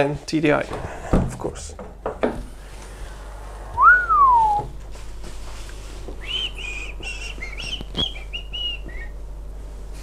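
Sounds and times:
short high whistled notes: 0:03.8 - 0:04.7.

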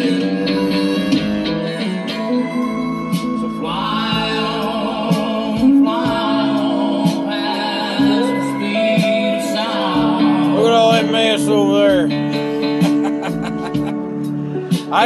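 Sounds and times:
instrumental accompaniment: 0:00.0 - 0:15.0
person singing: 0:00.0 - 0:15.0.

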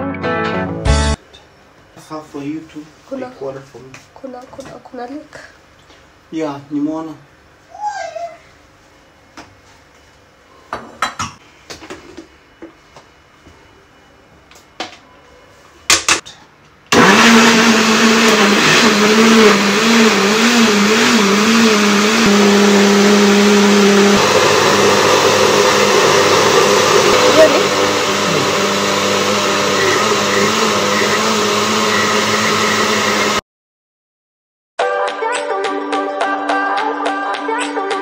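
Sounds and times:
blender running: 0:16.9 - 0:33.4.

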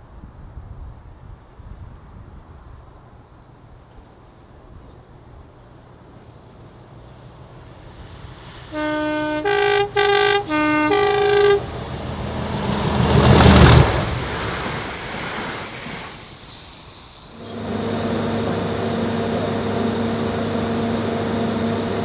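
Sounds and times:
diesel locomotive engine growling: 0:03.0 - 0:22.0
two-tone locomotive horn blasts: 0:08.7 - 0:11.9, 0:17.4 - 0:22.0.

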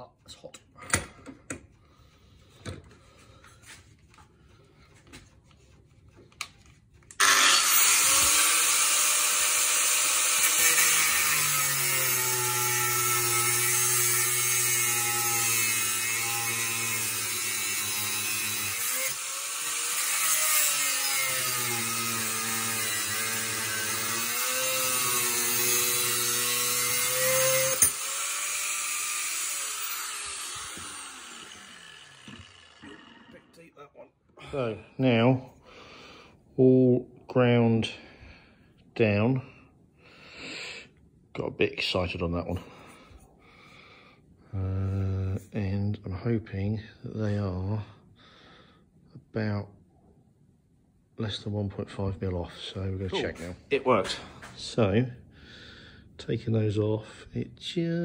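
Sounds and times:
power grinder cutting metal: 0:07.2 - 0:33.5.

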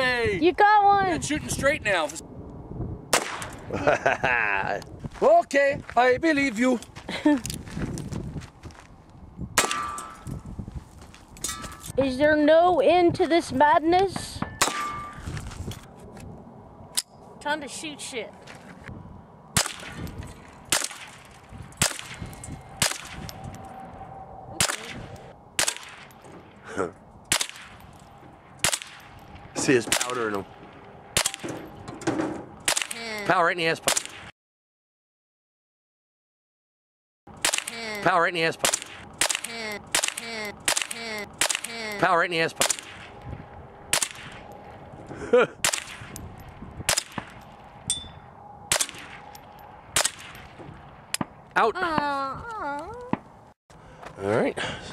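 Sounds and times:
gunshots: 0:03.1 - 0:03.6, 0:19.6 - 0:20.1, 0:20.7 - 0:22.2, 0:22.8 - 0:23.2, 0:24.6 - 0:26.1, 0:27.3 - 0:27.8, 0:28.6 - 0:31.7, 0:32.6 - 0:33.1, 0:33.8 - 0:34.3, 0:37.4 - 0:38.0, 0:38.6 - 0:43.2, 0:43.9 - 0:44.5, 0:45.6 - 0:46.2, 0:46.9 - 0:47.4, 0:48.7 - 0:49.3, 0:49.9 - 0:50.6
rifle shots: 0:03.1 - 0:03.6, 0:19.6 - 0:20.1, 0:20.7 - 0:22.2, 0:22.8 - 0:23.2, 0:24.6 - 0:26.1, 0:27.3 - 0:27.8, 0:28.6 - 0:31.6, 0:32.6 - 0:33.0, 0:37.4 - 0:37.8, 0:38.6 - 0:41.9, 0:42.6 - 0:43.2, 0:43.9 - 0:44.4, 0:45.6 - 0:46.2, 0:46.9 - 0:47.4, 0:48.7 - 0:49.3, 0:50.0 - 0:50.5.

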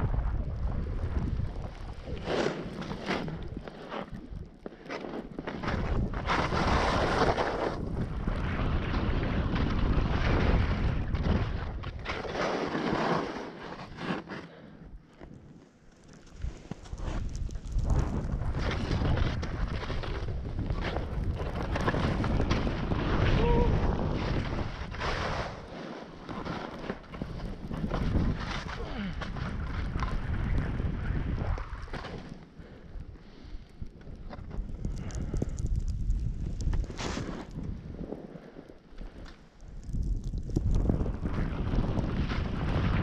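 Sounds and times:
wind rushing over microphone: 0:00.0 - 0:04.5, 0:05.6 - 0:12.1, 0:16.3 - 0:25.8, 0:26.4 - 0:43.0
skis hissing through snow: 0:36.9 - 0:37.5.

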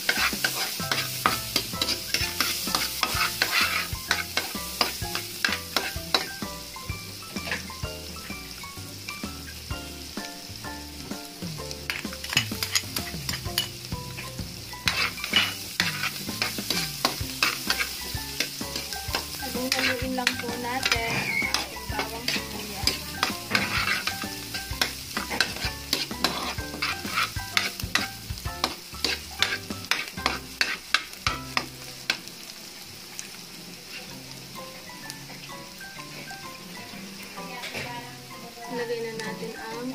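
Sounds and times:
spatula scraping a wok: 0:00.0 - 0:08.3, 0:11.8 - 0:32.2, 0:33.8 - 0:34.2
onion sizzling in hot oil: 0:00.0 - 0:39.9.

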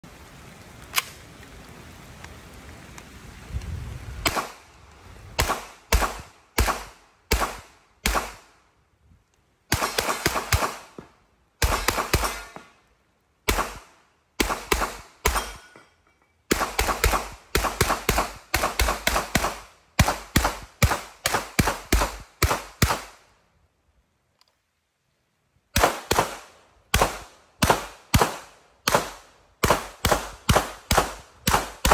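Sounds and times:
rapid gunshots: 0:11.6 - 0:12.6.

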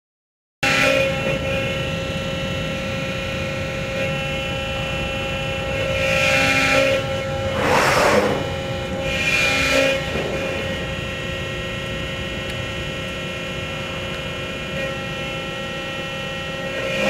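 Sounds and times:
hydraulic unit hum: 0:00.6 - 0:17.0
steady whining tones: 0:00.6 - 0:17.0
hissing surges: 0:07.5 - 0:08.7.

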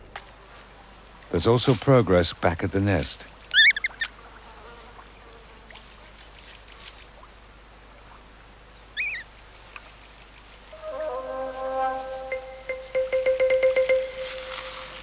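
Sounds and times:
faint hiss: 0:00.0 - 0:15.0
wavering chirp: 0:08.9 - 0:09.3, 0:10.7 - 0:15.0
high insect trill: 0:10.6 - 0:15.0
soft music: 0:10.7 - 0:15.0.

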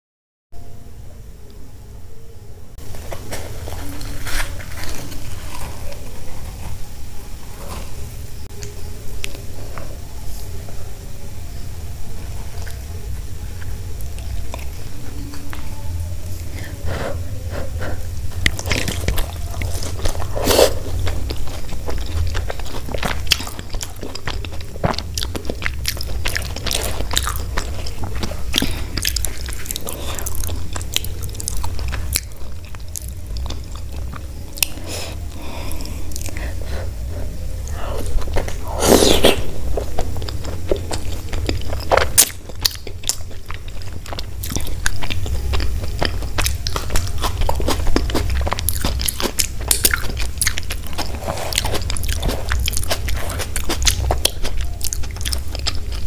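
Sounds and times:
steady low hum: 0:00.6 - 0:56.0
close-miked chewing and mouth clicks: 0:12.4 - 0:16.7, 0:17.4 - 0:56.0.

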